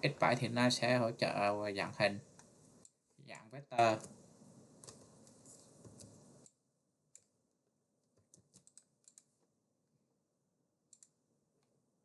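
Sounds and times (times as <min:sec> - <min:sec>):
computer clicks: 0:08.2 - 0:09.3, 0:10.9 - 0:11.2.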